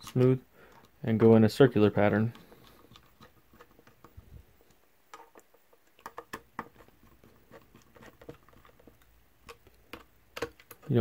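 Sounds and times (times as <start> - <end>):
hands handling plastic shell: 0.0 - 11.0.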